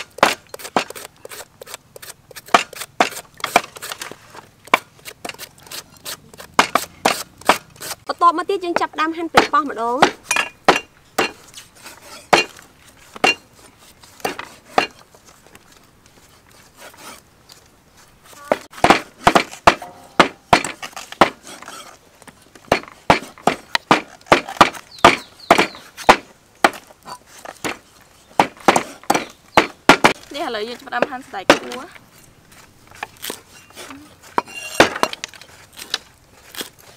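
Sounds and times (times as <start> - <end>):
knife chopping on wooden block: 0.0 - 4.0, 4.7 - 8.0, 12.0 - 12.6, 13.2 - 13.5, 18.5 - 21.6, 22.7 - 26.9, 28.4 - 30.2.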